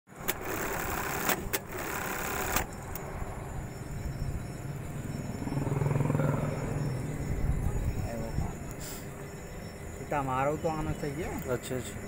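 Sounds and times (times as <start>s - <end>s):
steady hum: 0.1s - 12.0s
sharp clicks: 0.2s - 3.1s
sewing machine running: 0.3s - 2.6s.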